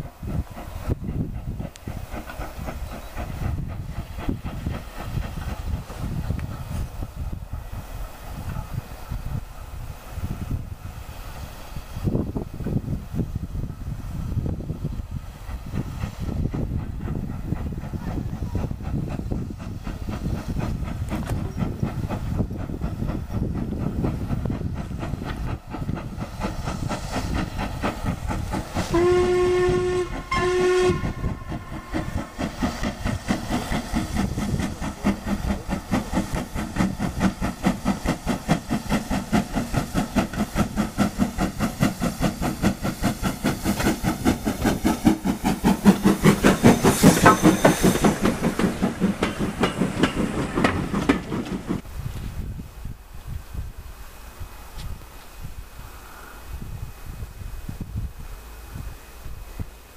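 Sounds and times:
steam locomotive exhaust beats: 0:00.0 - 0:59.9
steam whistle blasts: 0:28.9 - 0:32.0.

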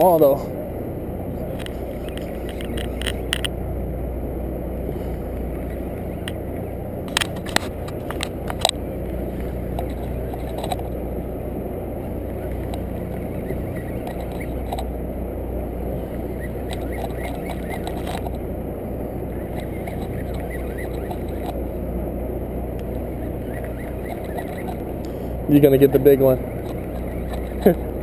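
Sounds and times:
boat engine humming: 0:00.0 - 0:28.0
sharp clicks: 0:01.5 - 0:03.6, 0:07.0 - 0:08.8, 0:09.4 - 0:11.0, 0:12.3 - 0:14.9, 0:16.4 - 0:18.4, 0:19.5 - 0:21.6, 0:26.2 - 0:27.9.

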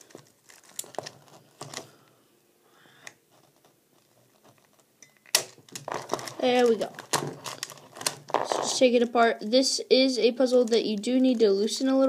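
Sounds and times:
puzzle cube plastic clicks: 0:10.4 - 0:12.0.

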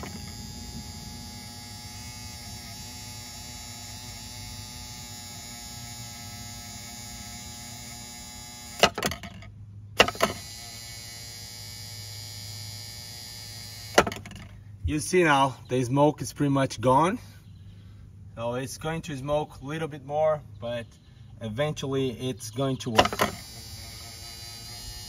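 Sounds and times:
electric motor humming: 0:00.0 - 0:09.0, 0:10.0 - 0:14.4, 0:23.0 - 0:25.0.

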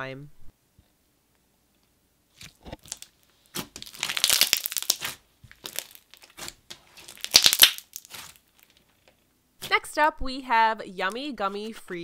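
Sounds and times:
slime squeezed with crunchy crackles: 0:02.3 - 0:09.0.

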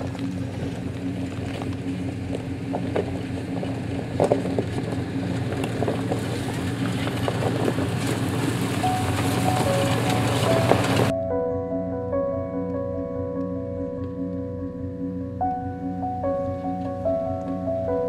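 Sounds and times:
rocks crunching under tyres: 0:00.0 - 0:11.1
truck engine running: 0:00.0 - 0:11.1.

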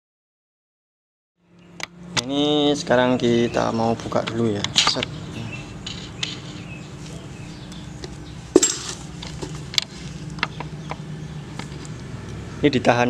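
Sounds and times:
metal clinks and taps: 0:08.0 - 0:09.6.

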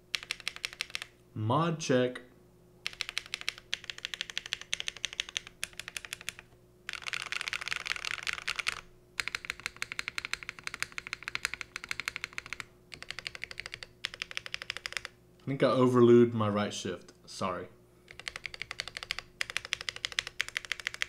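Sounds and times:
fast mechanical keyboard typing: 0:00.1 - 0:01.1, 0:02.8 - 0:15.1, 0:18.1 - 0:21.0.

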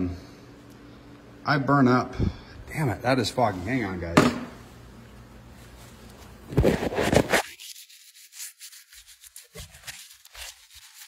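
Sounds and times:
rubbing on camera lens: 0:06.5 - 0:11.0.

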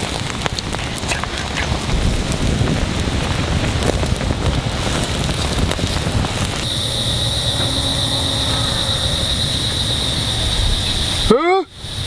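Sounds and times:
hot oil sizzling and crackling: 0:00.0 - 0:12.0
wind rumbling on microphone: 0:00.0 - 0:12.0
high-pitched drone: 0:06.6 - 0:12.0.

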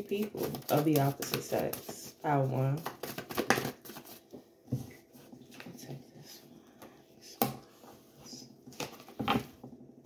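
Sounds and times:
cards being shuffled: 0:02.7 - 0:04.3.

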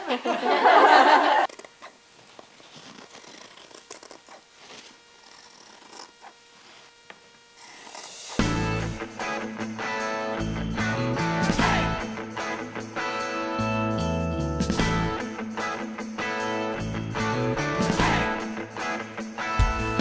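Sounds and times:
shears snipping fabric: 0:01.4 - 0:08.7.

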